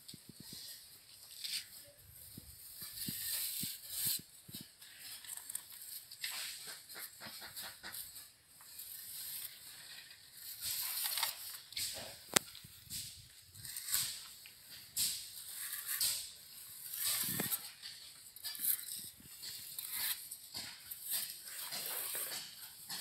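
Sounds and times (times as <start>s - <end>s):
trowel scraping cement render: 0.4s - 23.0s.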